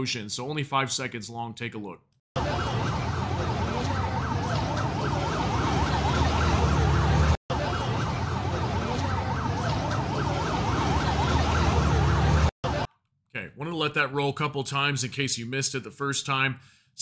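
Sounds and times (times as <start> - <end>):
emergency siren yelping: 2.4 - 12.9
street noise rumble: 2.4 - 12.9.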